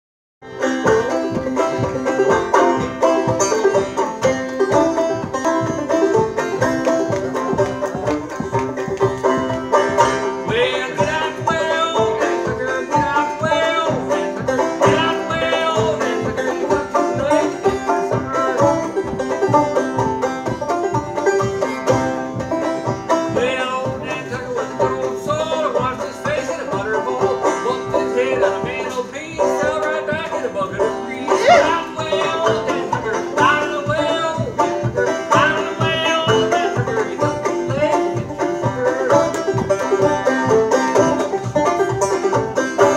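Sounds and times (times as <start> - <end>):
banjo picking: 0.4 - 42.9
man singing: 10.2 - 19.0, 23.3 - 41.2.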